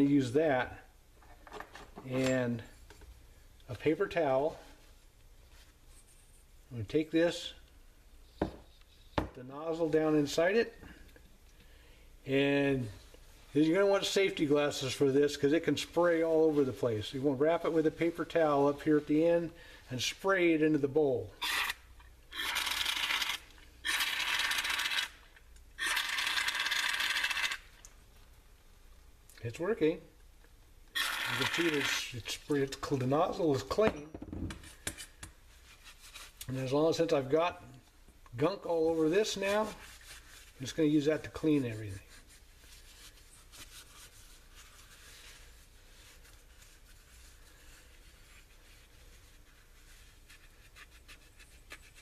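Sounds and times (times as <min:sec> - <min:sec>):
paper towel rubbing metal: 0:31.3 - 0:33.5, 0:38.7 - 0:52.0.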